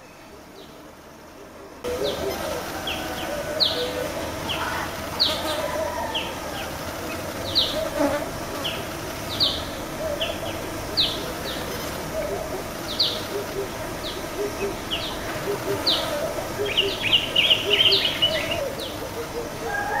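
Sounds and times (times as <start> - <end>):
low warbling bird calls: 0.0 - 20.0.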